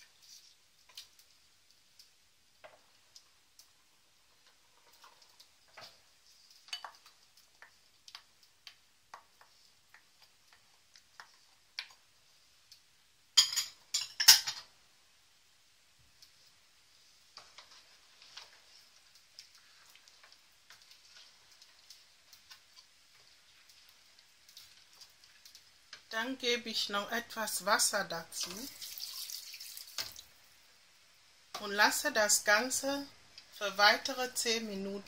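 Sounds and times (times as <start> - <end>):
wooden spoon scraping pot: 17.3 - 26.0.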